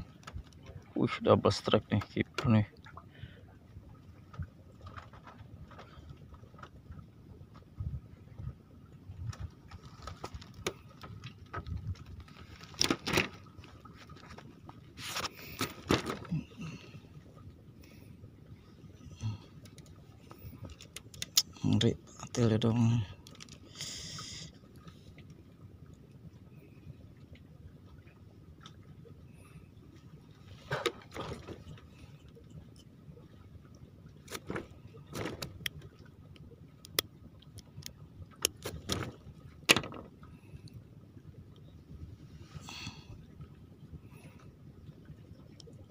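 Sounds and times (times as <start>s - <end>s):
rustles from handling fish: 4.3s - 7.0s, 9.2s - 17.0s
taps and knocks on bamboo deck: 39.7s - 40.1s.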